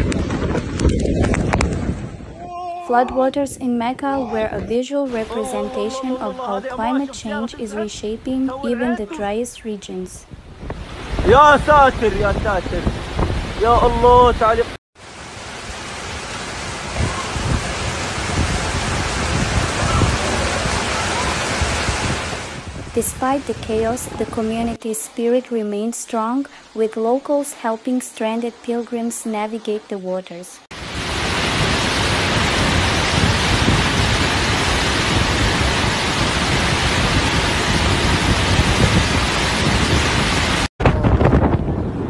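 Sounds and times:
floodwater rushing down street: 15.0s - 24.6s, 30.7s - 40.7s.

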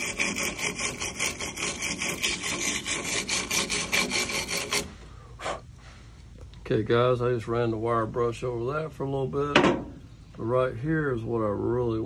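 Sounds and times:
wire brush scrubbing metal: 0.0s - 5.0s.

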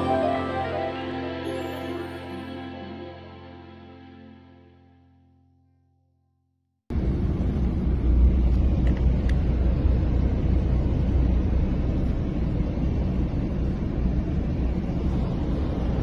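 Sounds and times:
vehicle engine rumble: 6.9s - 16.0s.

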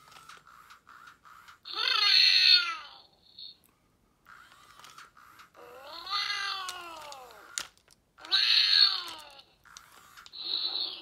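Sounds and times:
toy dragon electronic calls: 1.7s - 3.6s, 5.6s - 7.6s, 8.2s - 11.0s.

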